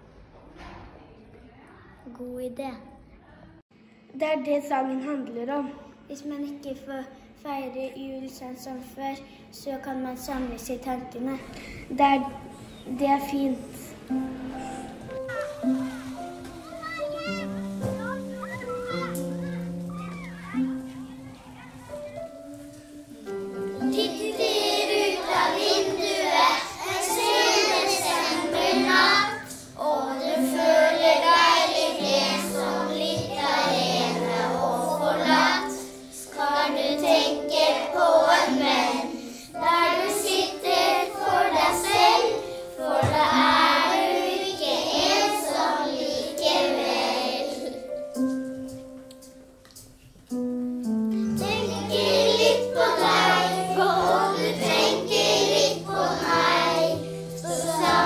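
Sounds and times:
instrumental accompaniment: 13.6s - 58.0s
children singing in unison: 22.5s - 47.9s, 51.2s - 58.0s.

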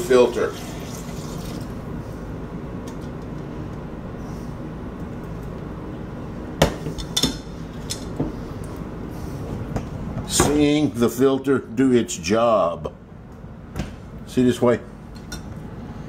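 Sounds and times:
oil pouring into filter: 0.4s - 1.8s.

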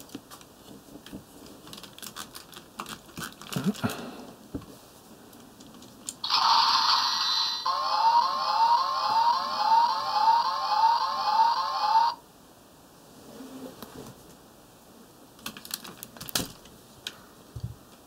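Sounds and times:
siren-like rising sweeps: 6.2s - 12.2s.

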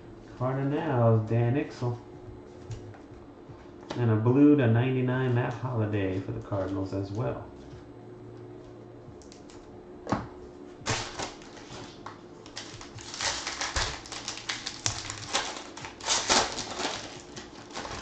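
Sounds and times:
plastic wrapper crinkling: 10.8s - 18.0s.

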